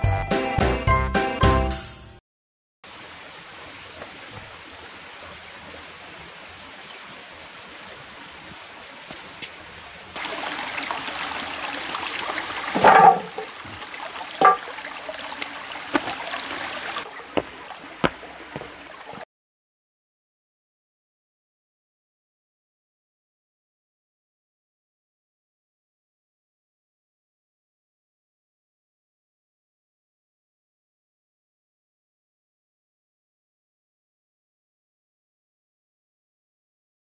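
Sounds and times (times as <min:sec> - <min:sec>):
stream trickling over stones: 0:02.9 - 0:19.2
footsteps on stones and grass: 0:17.3 - 0:19.2.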